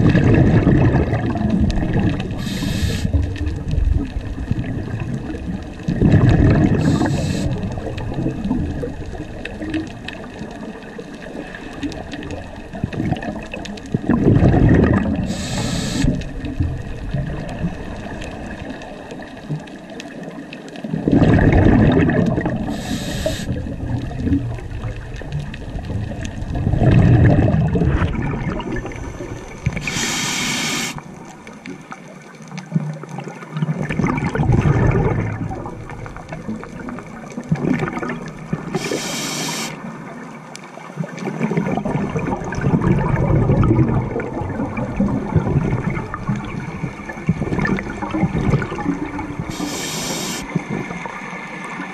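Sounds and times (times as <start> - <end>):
exhaled bubbles rumbling: 0.0 - 51.9
regulator air hiss: 2.4 - 3.2, 6.8 - 7.6, 15.2 - 16.2, 22.7 - 23.6, 28.9 - 31.0, 38.8 - 39.8, 49.5 - 50.5.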